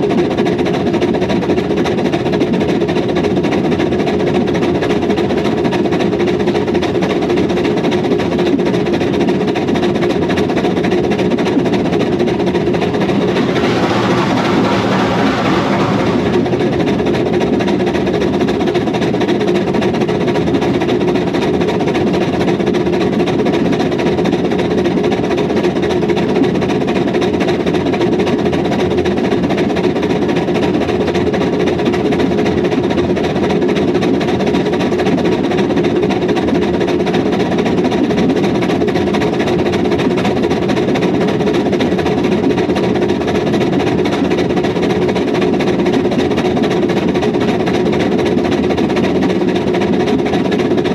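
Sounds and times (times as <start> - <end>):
steam locomotive exhaust: 12.6 - 17.9
wheels clattering on rail: 12.8 - 17.8.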